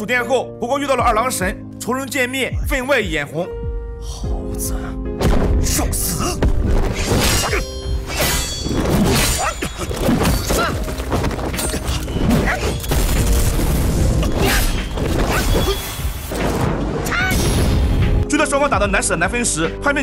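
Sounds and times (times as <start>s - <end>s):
background music: 0.0s - 20.0s
fight hits and booms: 5.2s - 7.0s.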